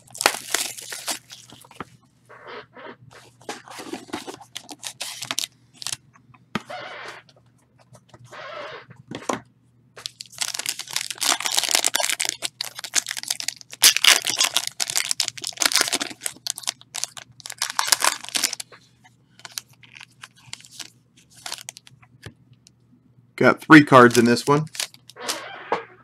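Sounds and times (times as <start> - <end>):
foil wrapper tearing and crinkling: 0.0 - 1.8, 3.6 - 6.0, 10.0 - 18.7, 19.4 - 21.8, 24.0 - 25.3.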